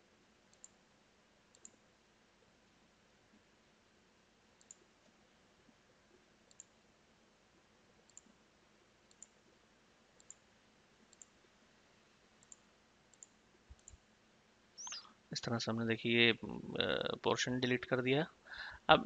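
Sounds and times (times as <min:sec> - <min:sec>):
faint mouse clicks: 0:00.5 - 0:00.8, 0:01.5 - 0:01.8, 0:04.6 - 0:04.9, 0:06.4 - 0:06.8, 0:08.0 - 0:08.4, 0:09.1 - 0:09.4, 0:10.2 - 0:10.5, 0:11.1 - 0:11.4, 0:12.4 - 0:14.0, 0:14.8 - 0:15.1.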